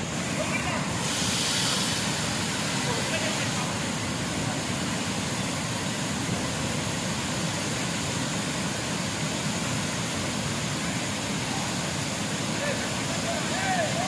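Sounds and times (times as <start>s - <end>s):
water rushing over a spillway: 0.0s - 14.0s.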